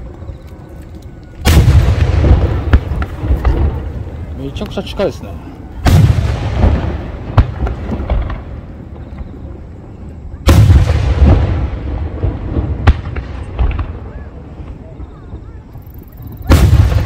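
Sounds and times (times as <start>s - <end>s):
firework booms and bangs: 1.4s - 5.0s, 5.7s - 9.7s, 10.4s - 15.6s, 16.4s - 17.0s.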